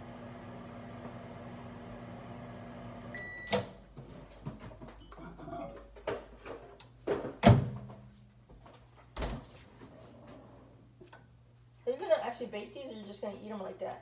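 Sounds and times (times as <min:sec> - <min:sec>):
microwave oven humming: 0:00.0 - 0:03.9
microwave beep: 0:03.0 - 0:03.8.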